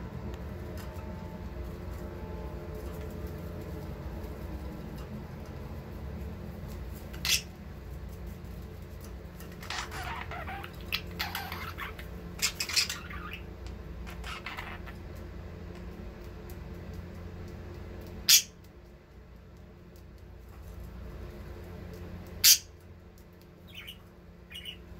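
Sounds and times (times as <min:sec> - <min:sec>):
steady low hum: 0:00.0 - 0:24.9
budgerigars chirping and chattering: 0:07.2 - 0:07.5, 0:09.6 - 0:13.5, 0:14.1 - 0:15.0, 0:18.2 - 0:18.6, 0:22.4 - 0:22.7, 0:23.7 - 0:24.8.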